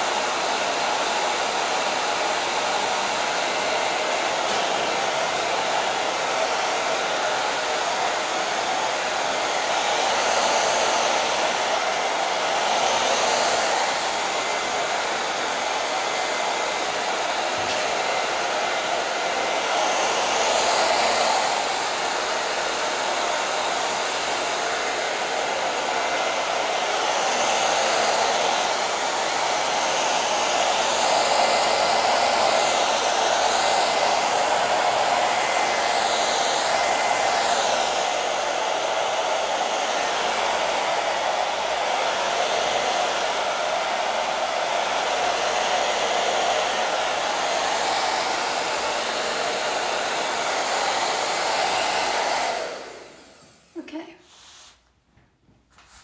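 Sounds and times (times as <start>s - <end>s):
hair dryer blowing: 0.0s - 56.0s.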